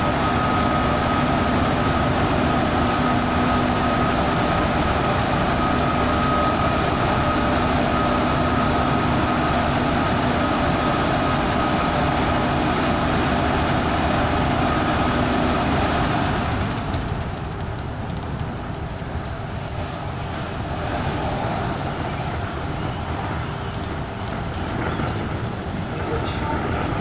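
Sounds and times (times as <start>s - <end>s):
bus road and engine noise: 0.0s - 27.0s
steady whine: 0.0s - 27.0s.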